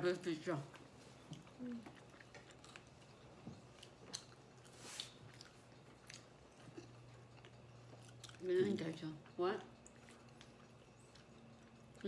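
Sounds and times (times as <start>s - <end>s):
low steady hum: 0.0s - 12.0s
person chewing food: 0.6s - 12.0s.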